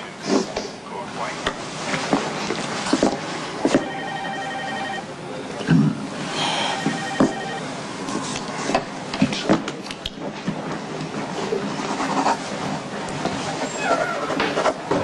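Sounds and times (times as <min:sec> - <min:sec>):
electronic telephone ringer trilling: 0:03.8 - 0:05.0, 0:06.7 - 0:07.7.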